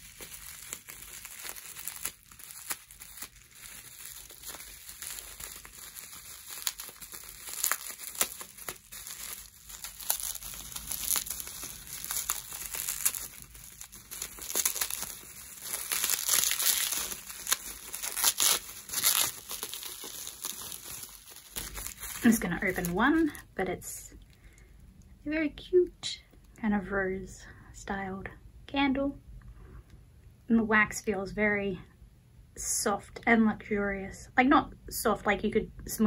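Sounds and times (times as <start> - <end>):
plastic wrapping crinkling: 0.0 - 23.5.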